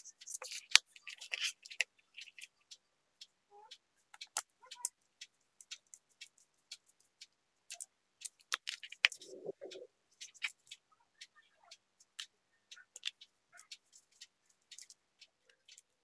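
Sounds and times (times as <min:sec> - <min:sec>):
electronic parts clicking: 0:00.0 - 0:02.7, 0:07.7 - 0:10.8
small screwdriver on screw terminals: 0:00.0 - 0:02.7, 0:05.6 - 0:09.4.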